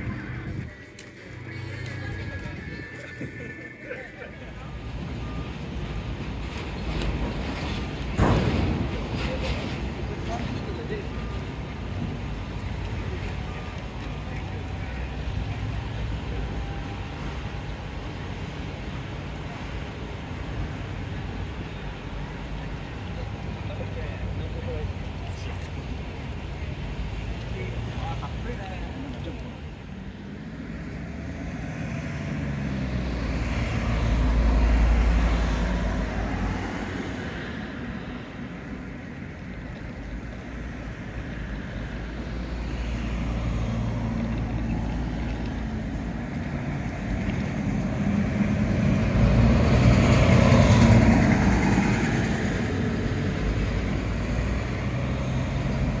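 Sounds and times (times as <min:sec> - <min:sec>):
large vehicle engine: 0:00.0 - 0:56.0
vehicle passing by: 0:30.2 - 0:37.8, 0:42.3 - 0:56.0.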